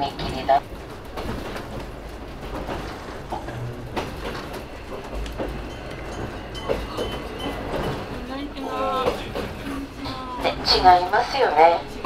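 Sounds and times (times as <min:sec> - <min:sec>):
train carriage rumble and rattle: 0:00.0 - 0:12.0.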